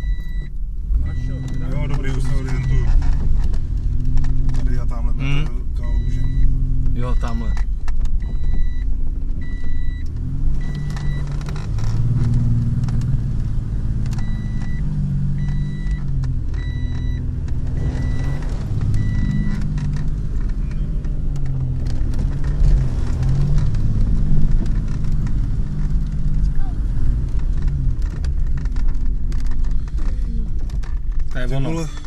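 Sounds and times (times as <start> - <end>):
short electronic beep: 0.0 - 2.9, 17.8 - 19.6
body rattles and knocks: 0.1 - 32.0
vehicle engine revving: 0.9 - 32.0.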